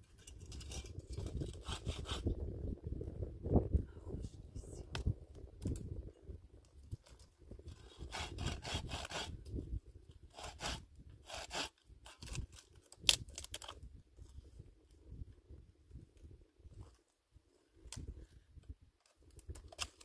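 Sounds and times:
hand saw rasping through wood: 7.9s - 9.4s, 10.3s - 11.8s.

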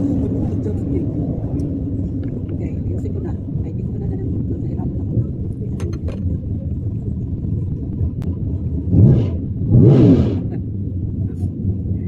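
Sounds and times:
car engines rumbling: 0.0s - 12.0s
car engine revving: 8.2s - 12.0s.

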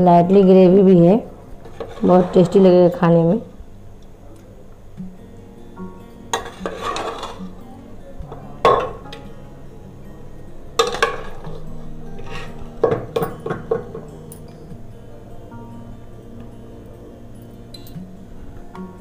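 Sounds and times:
background music: 0.0s - 19.0s
metal spoon clanking on pot: 10.8s - 11.6s.

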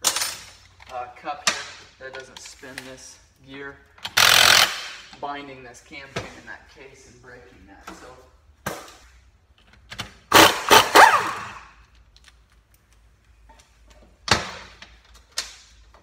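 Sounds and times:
impact wrench hammering: 4.0s - 5.1s, 10.3s - 11.6s.

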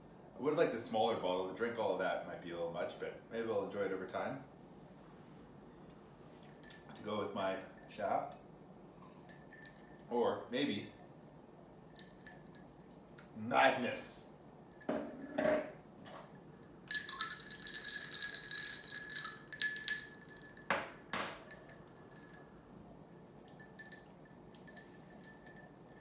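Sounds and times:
drinking glass clinking and ringing: 6.5s - 7.0s, 9.0s - 10.1s, 11.8s - 13.0s, 14.7s - 26.0s.

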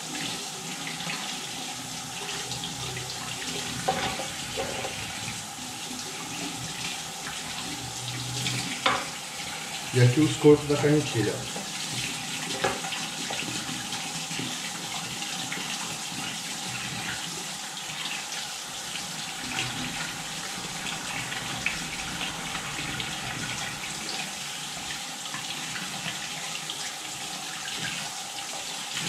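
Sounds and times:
tap water splashing over reel: 3.8s - 5.0s, 8.6s - 9.2s, 12.5s - 13.6s.

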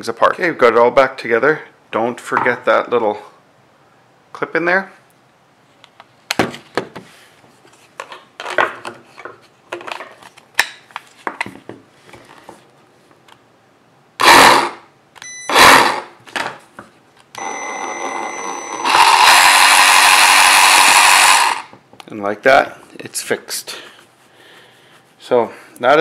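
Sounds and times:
reciprocating saw motor running: 15.5s - 16.1s, 18.7s - 21.7s.

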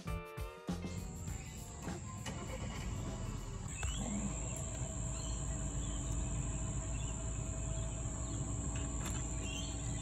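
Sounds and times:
low rumble: 1.1s - 10.0s
faint bird chirps: 3.2s - 10.0s.

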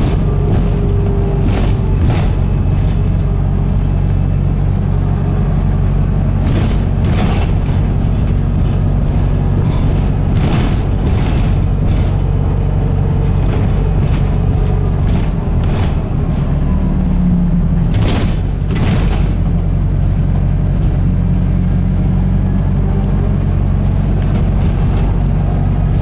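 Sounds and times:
bus cabin drone: 0.0s - 26.0s
interior fittings rattling: 6.4s - 16.6s.

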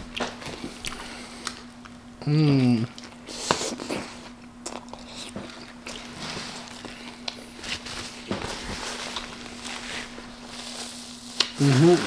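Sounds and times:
chewing with wet mouth clicks: 0.1s - 6.1s
paper crinkling: 6.0s - 12.0s.

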